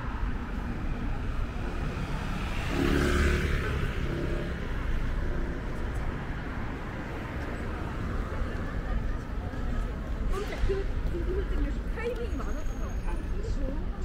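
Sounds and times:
low rumble of city traffic: 0.0s - 14.0s
car passing close by: 1.9s - 4.8s.

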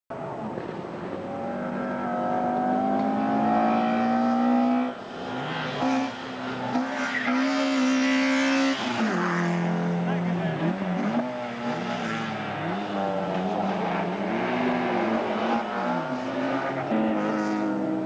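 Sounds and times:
race car engine at full throttle: 0.1s - 18.0s.

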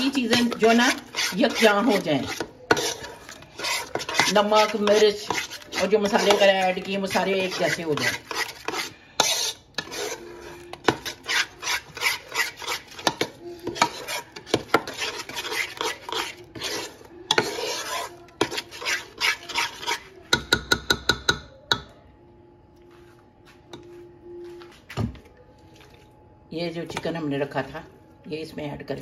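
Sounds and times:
metal spoon scraping a pot: 0.0s - 21.3s.

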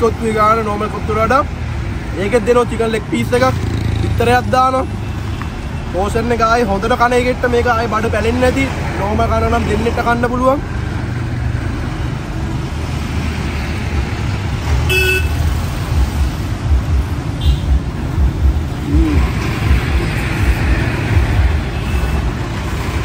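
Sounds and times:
road traffic rumble: 0.0s - 23.0s
short vehicle horn toot: 14.9s - 15.3s.

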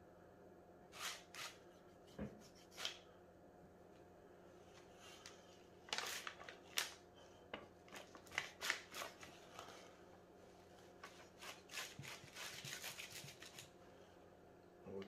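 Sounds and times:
plastic sheet crinkling: 5.8s - 7.0s, 7.7s - 9.8s.

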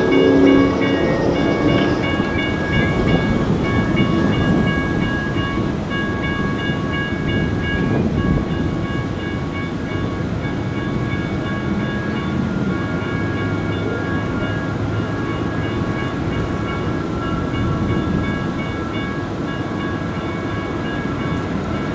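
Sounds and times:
steady low rumble: 0.0s - 6.6s
railroad crossing bell: 0.0s - 21.9s.

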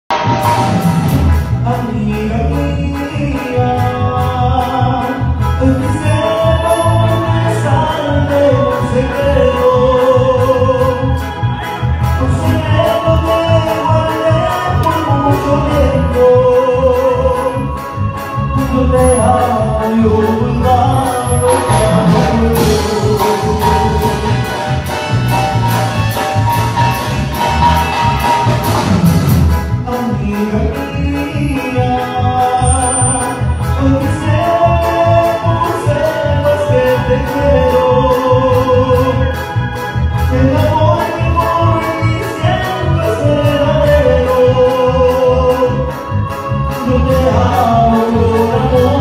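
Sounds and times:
drums keeping a steady beat: 0.1s - 49.0s
live band playing: 0.1s - 49.0s
person singing long notes: 1.6s - 24.4s
sustained melody tones: 5.6s - 8.1s, 17.9s - 28.7s, 32.5s - 34.7s.

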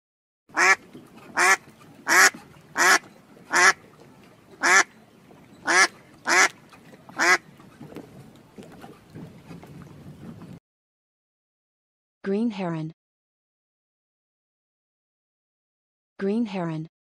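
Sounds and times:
duck quacking: 0.5s - 3.8s, 4.6s - 4.9s, 5.6s - 7.4s.

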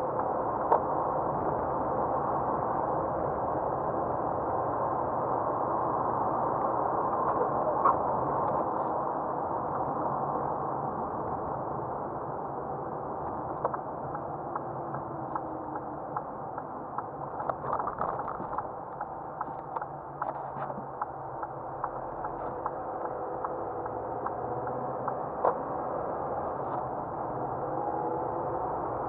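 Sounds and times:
tyre and engine noise: 12.2s - 29.0s.

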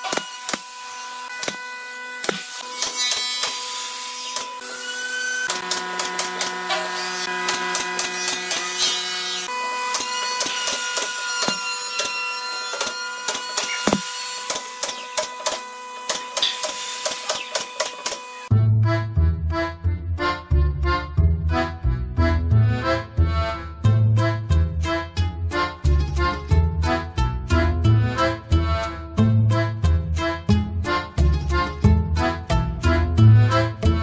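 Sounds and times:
nail gun firing: 1.4s - 3.7s, 5.5s - 9.0s, 9.9s - 18.3s.

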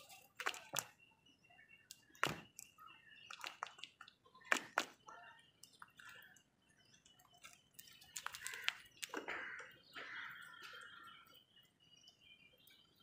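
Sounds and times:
crow beak clicks and taps: 7.3s - 10.9s.

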